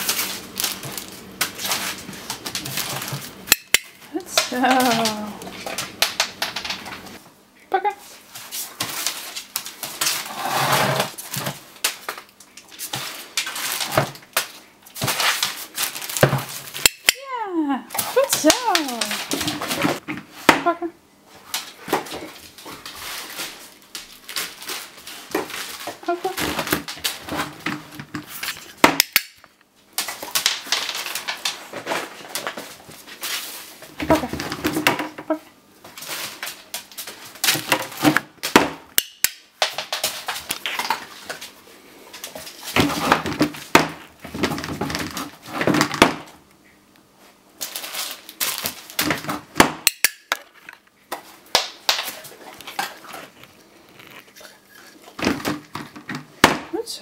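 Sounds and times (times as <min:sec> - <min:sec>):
plastic wrapper crinkling: 0:00.0 - 0:03.5, 0:11.1 - 0:16.8, 0:21.6 - 0:27.6, 0:47.5 - 0:49.1, 0:50.4 - 0:55.7.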